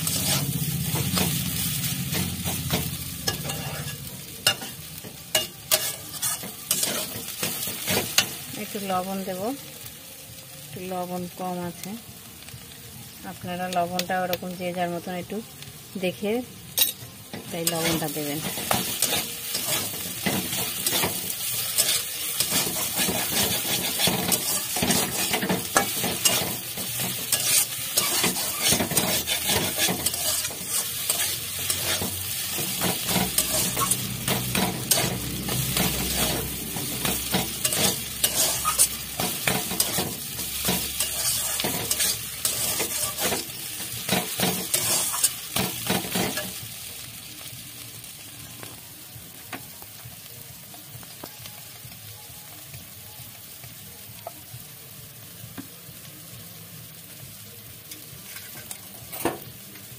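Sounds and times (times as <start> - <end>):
spatula scraping a pan: 0.0 - 8.4, 17.6 - 46.6, 58.2 - 59.4
food sizzling in a pan: 0.0 - 59.9.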